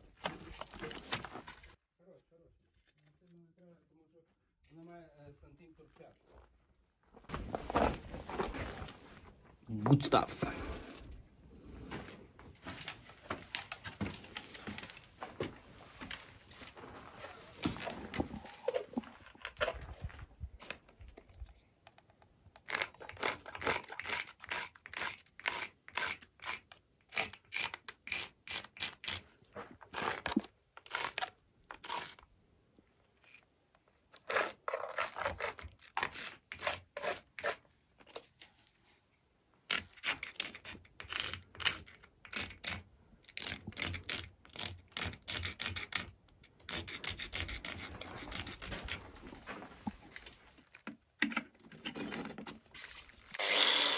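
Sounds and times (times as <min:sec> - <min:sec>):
pencil scratching on concrete: 0:34.2 - 0:37.6, 0:43.4 - 0:49.0.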